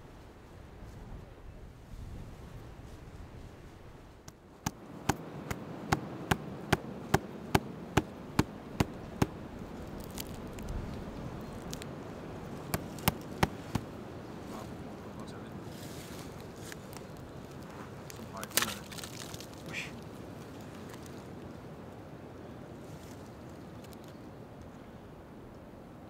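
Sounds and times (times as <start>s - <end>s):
knife chopping into wood: 4.6s - 9.4s, 12.6s - 13.9s.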